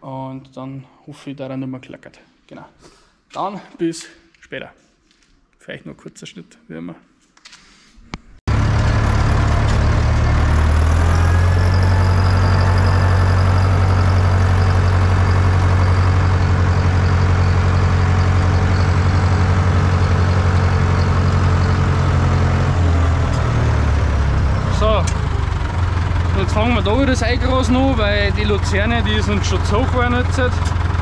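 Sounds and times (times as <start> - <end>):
tractor diesel engine running: 8.5 - 31.0.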